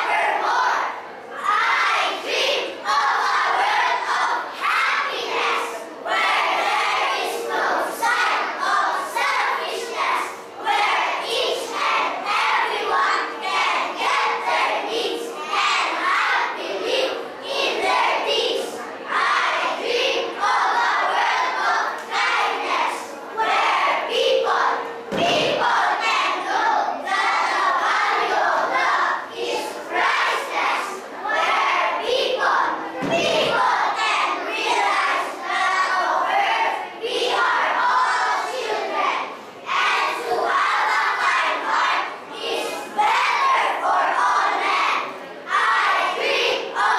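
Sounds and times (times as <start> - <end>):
children reciting in unison: 0.0 - 46.9.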